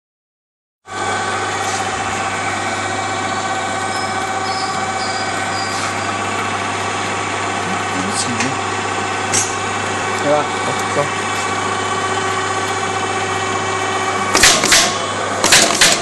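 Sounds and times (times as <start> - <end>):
paper folding machine whirring: 1.0 - 6.8, 10.0 - 16.0.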